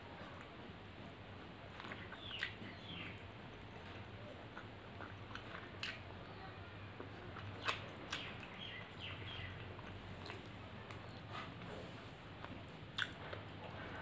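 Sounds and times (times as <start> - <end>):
chewing with wet mouth clicks: 1.7 - 6.4, 7.0 - 11.8, 12.4 - 14.0.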